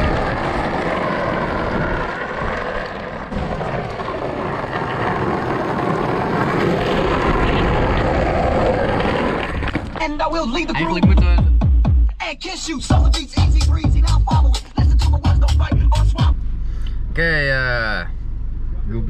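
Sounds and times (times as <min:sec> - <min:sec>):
wind on microphone: 0:00.0 - 0:09.8
skateboard wheels rolling on asphalt: 0:00.0 - 0:10.2.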